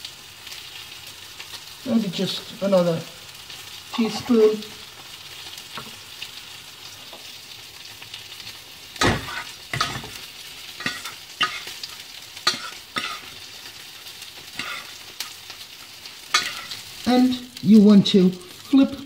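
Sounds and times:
fish frying in oil: 0.0 - 19.0
saucepan knocks and thuds: 9.0 - 10.2.

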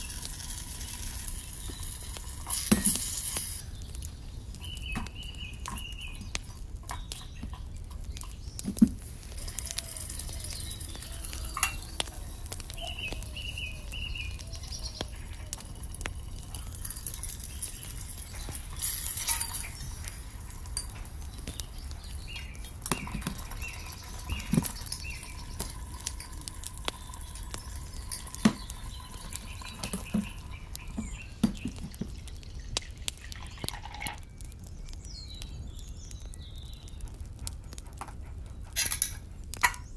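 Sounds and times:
high chirps: 9.4 - 33.6.

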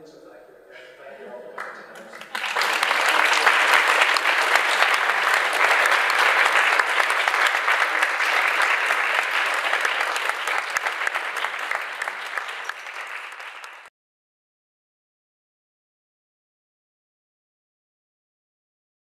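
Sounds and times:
audience applauding: 1.5 - 13.9.

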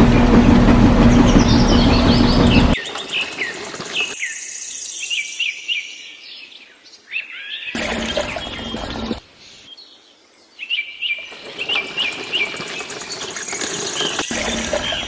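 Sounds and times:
small birds chirping: 1.0 - 15.0
wet concrete pouring and splattering: 2.8 - 4.2, 7.8 - 9.2, 11.2 - 15.0.

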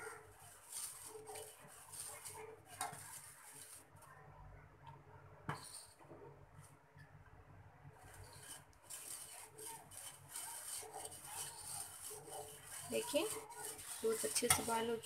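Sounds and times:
spoon scraping pot: 5.5 - 6.0, 8.0 - 15.0.

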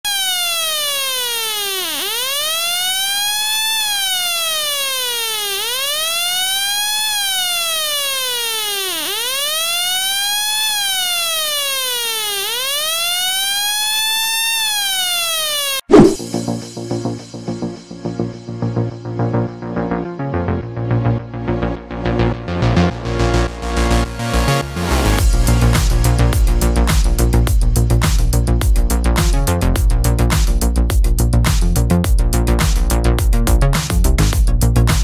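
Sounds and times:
electronic siren wailing: 0.1 - 16.2.

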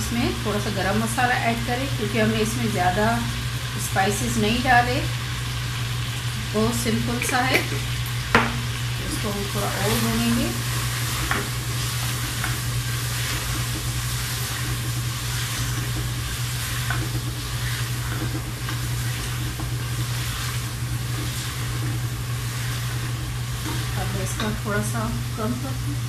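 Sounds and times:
meat sizzling in oil: 0.0 - 26.0
steady low hum: 0.0 - 26.0
wooden spoon scraping: 9.9 - 24.6.

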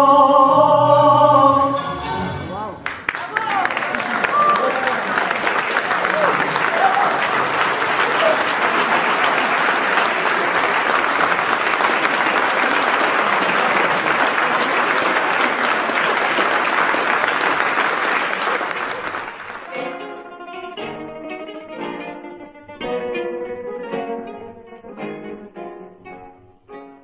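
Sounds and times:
audience applauding: 2.8 - 20.2
plucked string music: 19.7 - 26.9.

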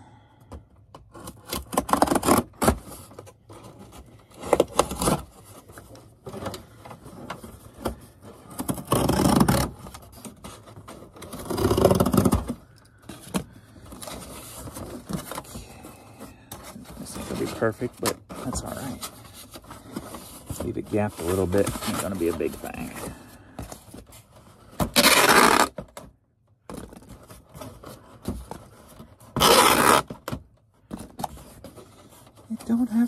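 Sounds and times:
scissors scraping cardboard: 1.1 - 3.0, 27.6 - 30.2.

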